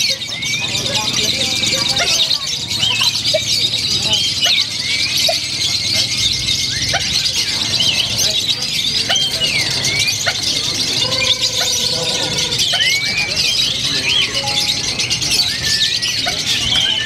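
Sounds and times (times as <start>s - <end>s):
lovebirds chattering: 0.0s - 17.0s.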